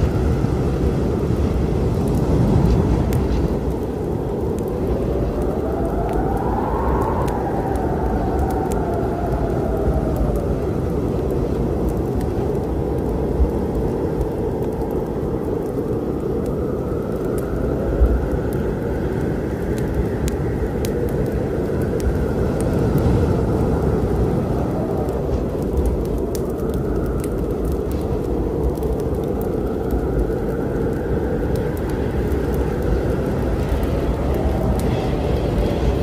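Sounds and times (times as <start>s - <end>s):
deep rumble of storm wind: 0.0s - 36.0s
howling wind: 0.0s - 36.0s
wood fire crackling: 0.0s - 36.0s.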